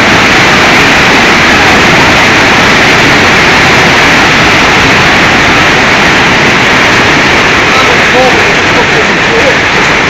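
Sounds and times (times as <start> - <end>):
floodwater rushing: 0.0 - 10.0.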